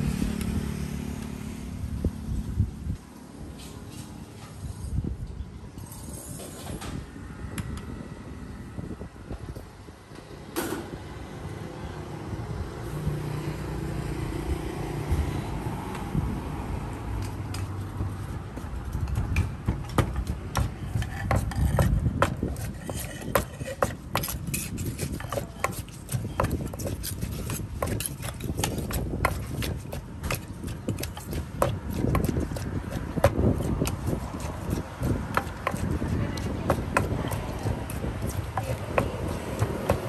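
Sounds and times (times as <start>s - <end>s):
utensils scraping against a bowl: 20.6s - 40.0s.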